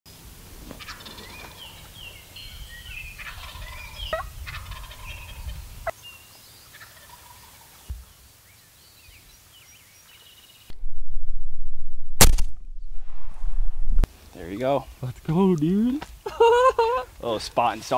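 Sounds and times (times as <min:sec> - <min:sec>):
turkey gobbling: 0:00.8 - 0:01.8, 0:03.2 - 0:06.0, 0:06.7 - 0:07.8
low rumble: 0:10.7 - 0:14.1.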